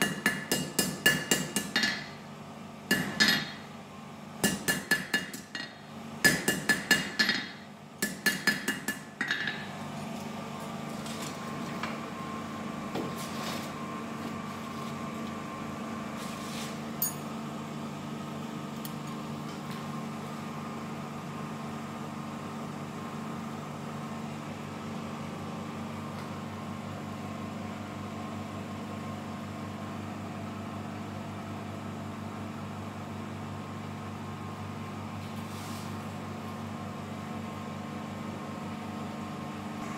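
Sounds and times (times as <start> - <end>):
fan hum: 0.0 - 39.9
hammer ringing on anvil: 17.0 - 17.3.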